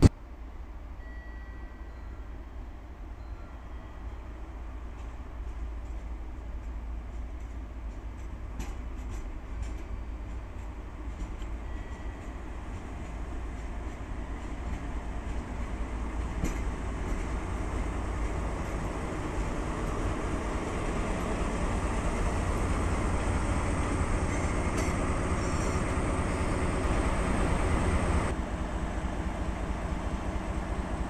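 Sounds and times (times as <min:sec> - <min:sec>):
locomotive diesel engine running: 0:13.6 - 0:31.0.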